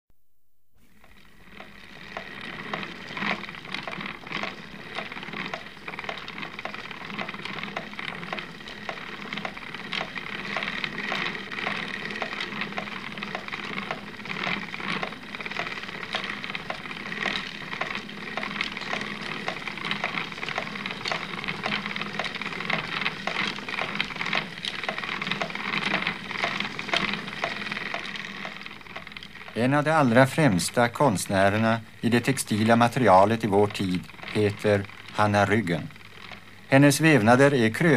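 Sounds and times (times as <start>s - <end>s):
spinning wheel clacking: 0.9s - 37.9s.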